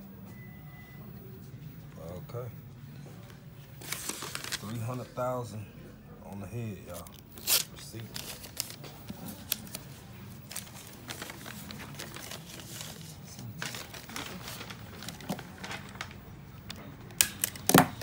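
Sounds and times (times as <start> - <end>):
paper rustling and crinkling: 3.2 - 5.2, 6.9 - 18.0.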